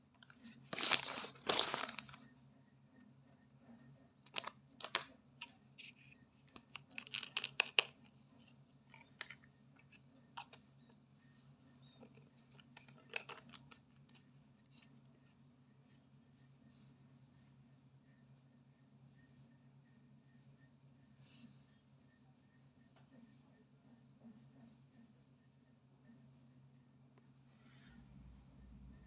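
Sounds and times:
faint low hum: 0.0s - 29.0s
paper leaflet rustling: 0.2s - 2.2s.

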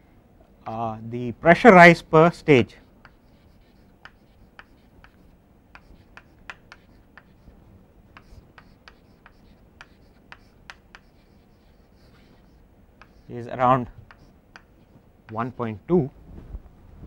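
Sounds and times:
chalk tapping and scratching on board: 3.0s - 7.5s, 8.1s - 15.6s.

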